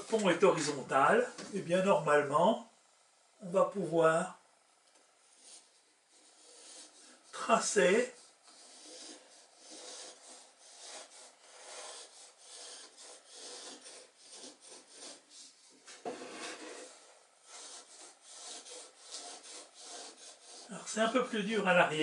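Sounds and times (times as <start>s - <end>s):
wooden block scraping on wood: 5.4s - 21.4s.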